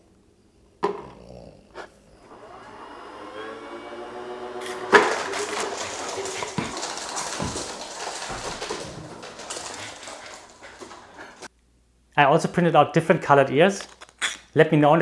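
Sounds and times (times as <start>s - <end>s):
electric motors whirring: 2.2s - 5.6s.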